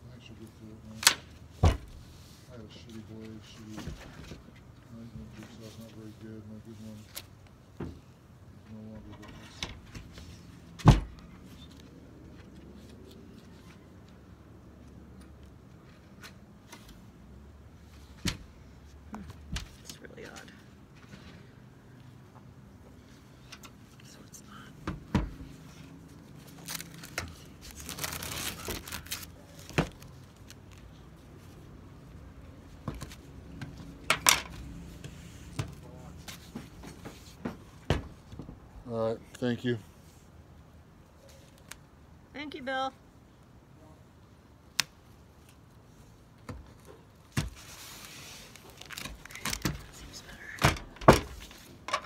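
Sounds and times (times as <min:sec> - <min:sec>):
hands rustling and crinkling: 0:25.6 - 0:31.8, 0:47.5 - 0:50.6.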